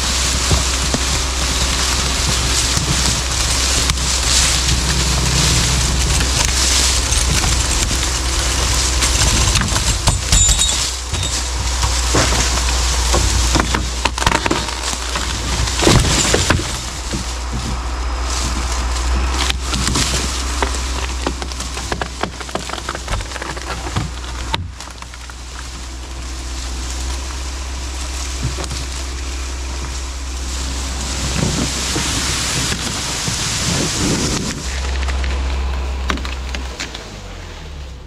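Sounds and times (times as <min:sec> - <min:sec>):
leaves and twigs crunching: 0:00.0 - 0:38.0
low hum: 0:00.0 - 0:38.0.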